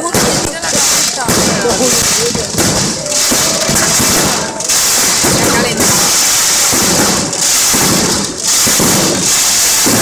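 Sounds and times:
fire crackling and rushing: 0.0 - 10.0
fireworks going off: 0.0 - 10.0.

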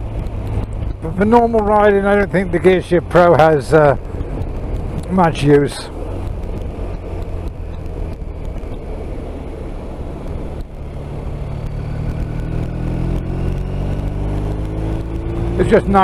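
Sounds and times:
wind rush: 3.0 - 15.6
motorcycle engine accelerating: 5.9 - 16.0.

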